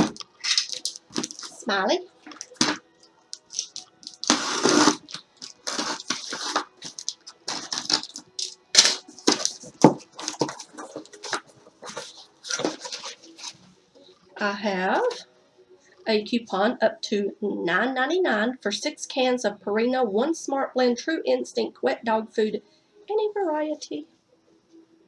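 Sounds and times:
paper and cardboard rustling: 0:00.0 - 0:02.8, 0:03.4 - 0:13.7.

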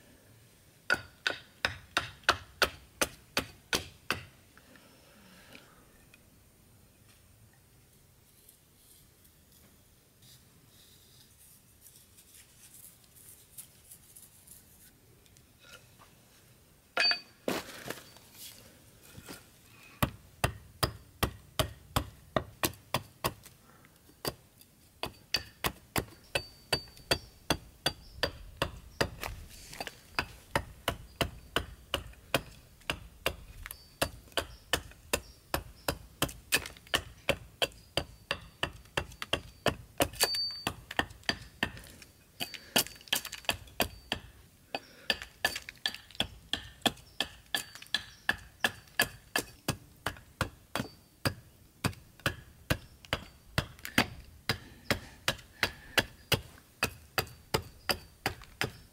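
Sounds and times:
hatchet chopping wood: 0:00.9 - 0:04.3, 0:20.0 - 0:23.5, 0:25.0 - 0:58.9.

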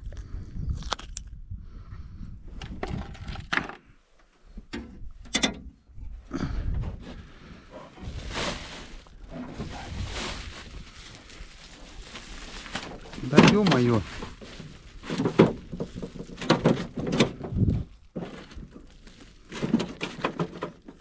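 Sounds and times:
rustling: 0:07.0 - 0:21.0
knocks and clatters in metal boat: 0:12.8 - 0:18.9, 0:19.5 - 0:21.0.

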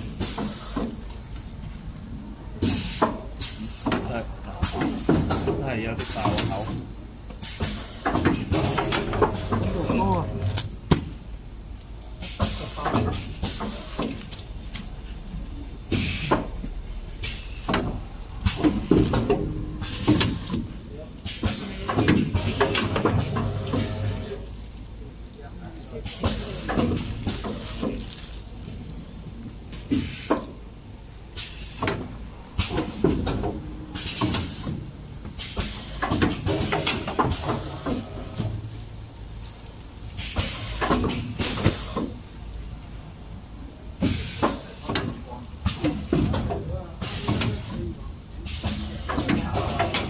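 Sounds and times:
air hiss: 0:00.1 - 0:01.0, 0:02.6 - 0:10.3, 0:15.9 - 0:19.2, 0:35.4 - 0:38.6
machinery clunks and clatter: 0:02.5 - 0:11.2, 0:12.2 - 0:15.0, 0:15.8 - 0:24.5, 0:26.0 - 0:28.9, 0:31.3 - 0:39.0, 0:40.1 - 0:42.4
machine clunks and knocks: 0:07.6 - 0:11.1
low machine rumble: 0:08.5 - 0:12.1, 0:14.2 - 0:21.2
plastic bag rustling: 0:23.6 - 0:30.3, 0:37.5 - 0:40.7.

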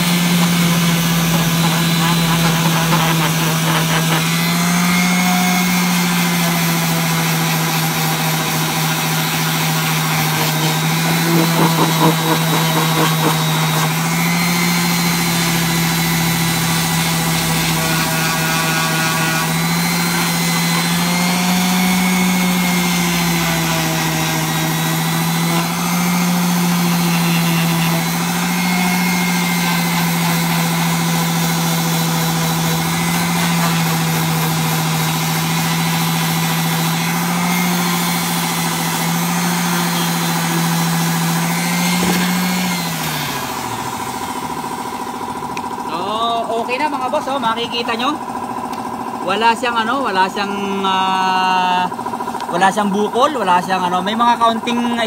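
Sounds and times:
rough scratching: 0:00.0 - 0:04.5
electric sander running: 0:00.0 - 0:55.0.

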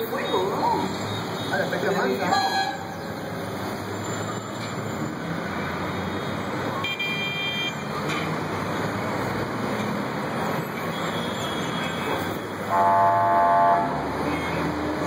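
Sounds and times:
city street traffic: 0:00.0 - 0:15.0
vehicle horn: 0:12.7 - 0:14.6.

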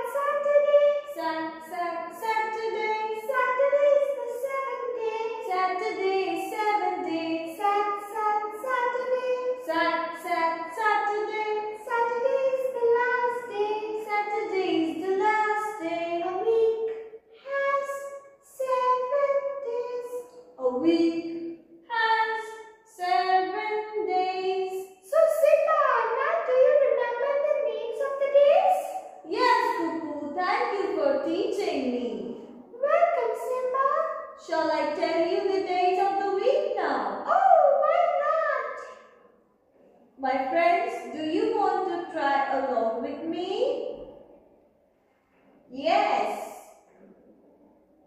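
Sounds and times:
high voice singing: 0:00.0 - 0:29.8.

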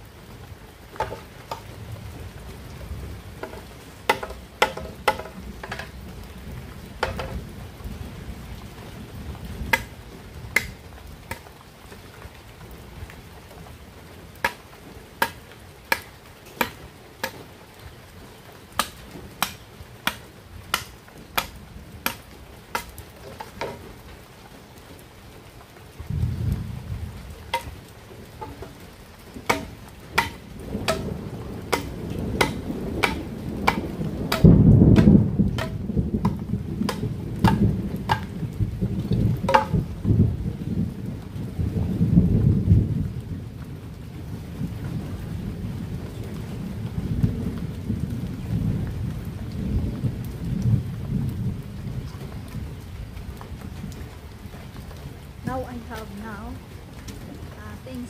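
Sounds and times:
low rumble of thunder: 0:00.0 - 0:11.4, 0:25.9 - 0:58.0
machete striking bamboo: 0:03.4 - 0:05.9, 0:09.7 - 0:09.9, 0:15.2 - 0:17.4, 0:18.8 - 0:23.8, 0:27.5 - 0:27.7, 0:29.5 - 0:31.0, 0:31.7 - 0:38.3, 0:39.5 - 0:39.8.

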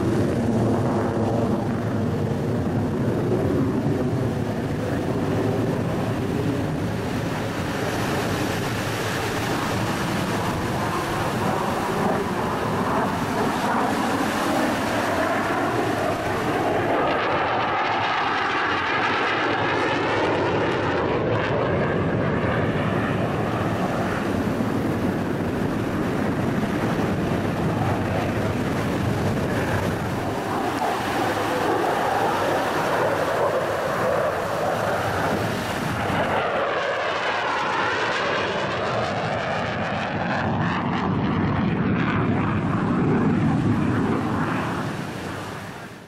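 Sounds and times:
jet roar passing by: 0:00.0 - 0:46.0.

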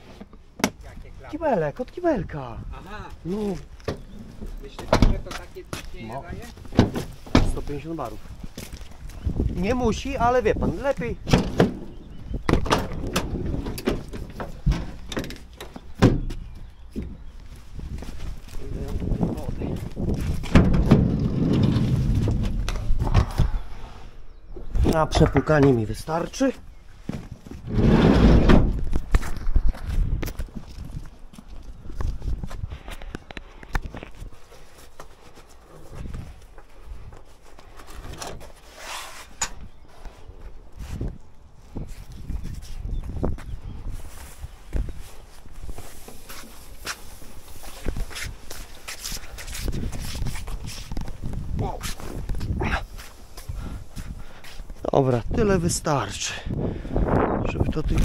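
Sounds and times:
clunks and rattles: 0:11.2 - 0:17.2, 0:20.2 - 0:23.5, 0:27.5 - 0:29.2.

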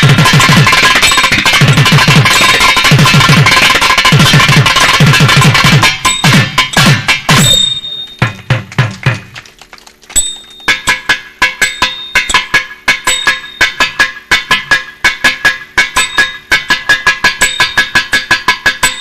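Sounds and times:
sharp ringing drum strokes: 0:00.0 - 0:09.3, 0:10.2 - 0:19.0.

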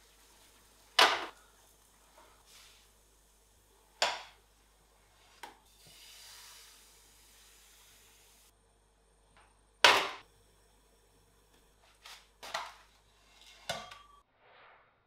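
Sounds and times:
batter hissing in hot pan: 0:00.0 - 0:03.8, 0:04.6 - 0:08.5.

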